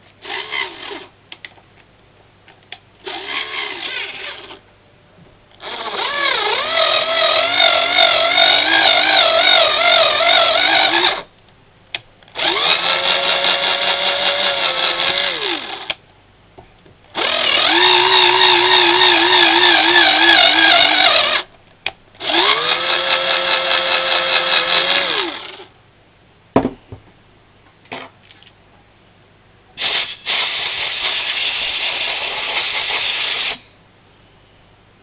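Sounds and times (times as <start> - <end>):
electric drill motor whining: 3.0 - 4.6, 5.6 - 11.3, 12.4 - 16.0, 17.2 - 21.5, 22.2 - 25.7.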